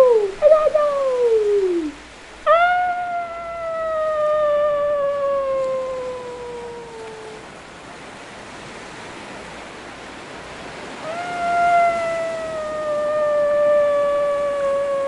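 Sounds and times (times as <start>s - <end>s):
person crying out ahh: 0.0s - 7.4s, 11.0s - 15.0s
small waves washing on sand: 0.1s - 15.0s.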